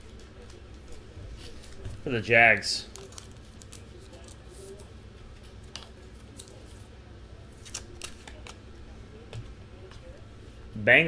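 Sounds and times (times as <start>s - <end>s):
trading cards clicking and scraping: 2.8s - 6.9s, 7.5s - 8.6s.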